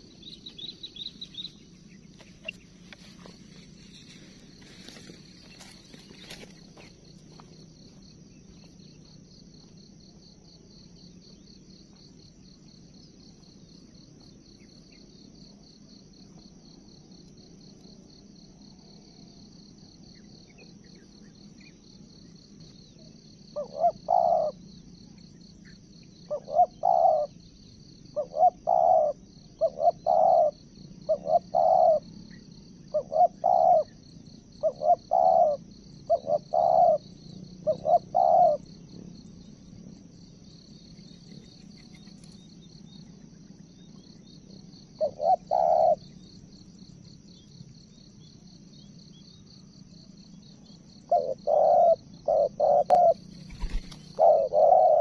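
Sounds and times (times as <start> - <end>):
high insect trill: 0.0 - 55.0
dove cooing: 23.6 - 24.6, 26.3 - 27.4, 28.2 - 32.1, 32.9 - 34.0, 34.6 - 38.7, 44.9 - 46.1, 51.1 - 55.0.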